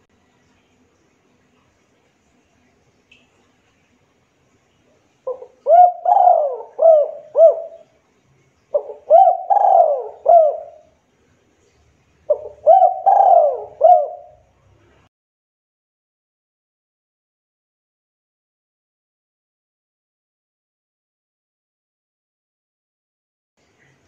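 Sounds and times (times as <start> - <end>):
dove cooing: 5.3 - 7.9, 8.7 - 10.9, 12.3 - 14.5.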